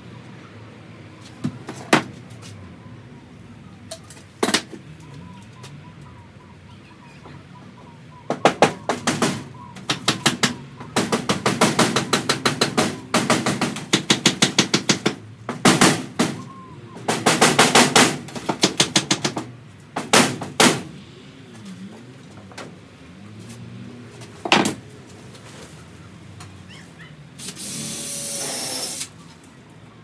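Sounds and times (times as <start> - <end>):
hammer striking timber: 8.3 - 16.5, 17.1 - 20.8.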